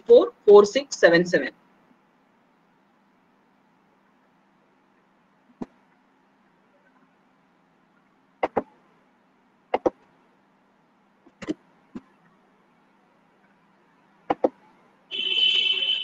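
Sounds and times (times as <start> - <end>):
computer mouse clicking: 9.7 - 10.0, 14.3 - 14.5.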